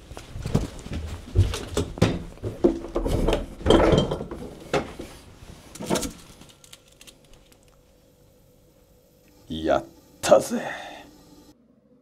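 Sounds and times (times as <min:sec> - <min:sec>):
refrigerator being rummaged: 0:00.0 - 0:06.6.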